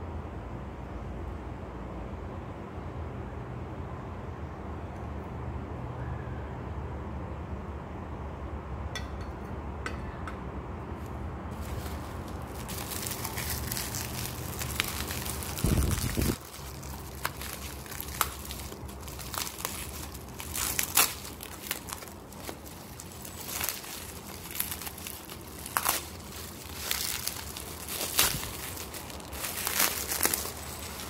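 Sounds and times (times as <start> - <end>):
bubble wrap crinkling and snapping: 11.6 - 31.0.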